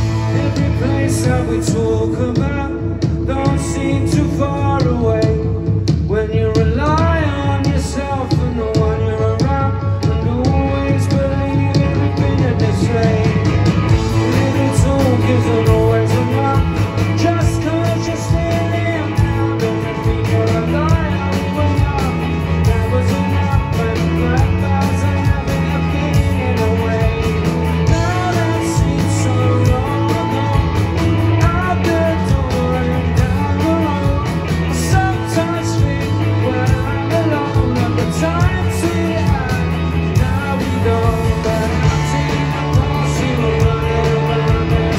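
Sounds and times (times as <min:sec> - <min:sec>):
bass guitar: 0:00.0 - 0:44.9
drums beat: 0:00.0 - 0:44.9
electric guitars: 0:00.0 - 0:44.9
man singing lead vocal: 0:00.0 - 0:44.9.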